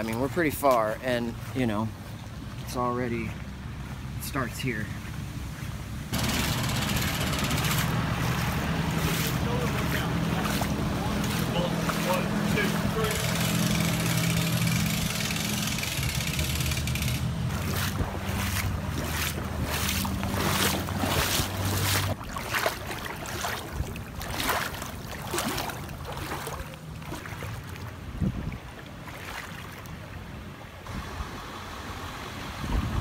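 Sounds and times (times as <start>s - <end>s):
splashing wading steps: 5.0s - 30.2s
tractor engine running: 6.1s - 22.2s.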